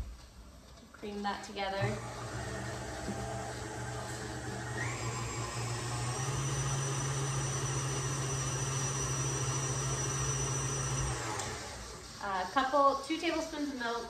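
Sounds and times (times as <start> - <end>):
electric stand mixer running: 1.8 - 12.4.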